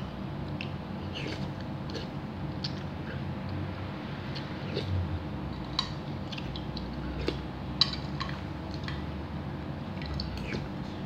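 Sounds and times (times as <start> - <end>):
low steady hum: 0.0 - 11.0
eating mouth sounds: 0.6 - 3.3, 4.3 - 5.0, 6.2 - 7.5, 10.0 - 11.0.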